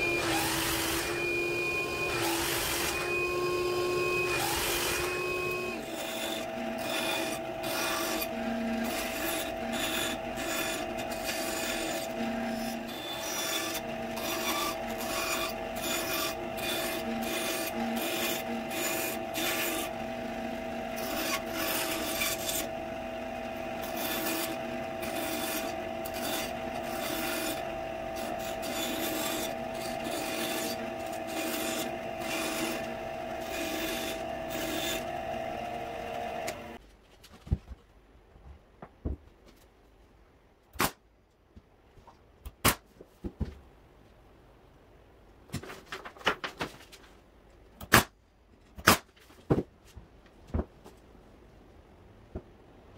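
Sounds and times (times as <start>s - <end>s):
band saw motor hum: 0.0s - 36.8s
saw blade rasping through wood: 0.0s - 36.8s.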